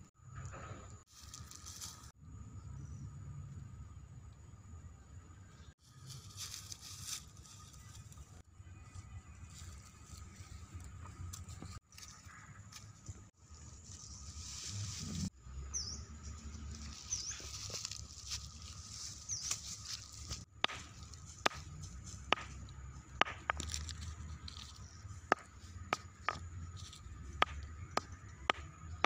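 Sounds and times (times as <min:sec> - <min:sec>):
rustle of dry leaves and soil: 0:01.1 - 0:02.2, 0:05.8 - 0:28.5
stone knocking on hard ground: 0:20.6 - 0:24.6, 0:25.2 - 0:26.6, 0:27.4 - 0:29.0.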